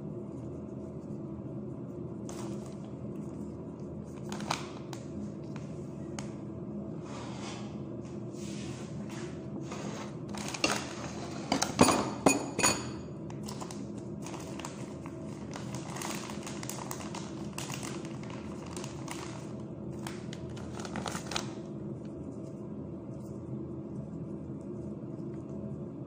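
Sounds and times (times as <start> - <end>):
steady low hum: 0.0 - 26.0
kitchen knocks and clatters: 10.4 - 13.1.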